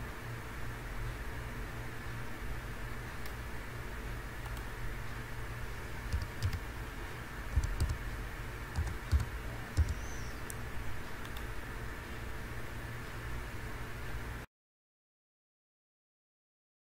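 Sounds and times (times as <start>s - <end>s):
low hum and hiss: 0.0s - 14.5s
computer keyboard clicking: 4.4s - 4.7s, 6.1s - 6.7s, 7.5s - 8.0s, 8.7s - 10.6s, 11.2s - 11.5s.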